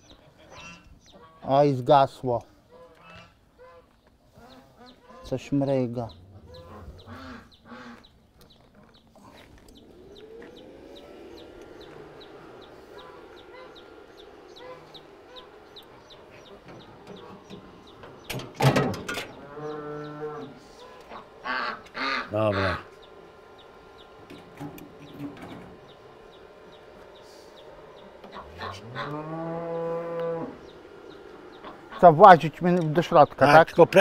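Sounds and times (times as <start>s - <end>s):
chickens clucking: 0.0s - 1.7s, 2.6s - 34.0s
rooster crowing: 19.4s - 22.8s, 28.3s - 30.6s.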